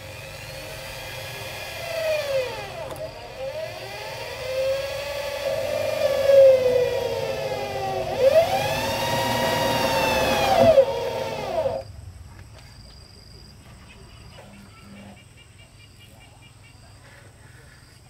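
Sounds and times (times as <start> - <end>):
electric drill driving screws into metal: 0.0 - 11.8.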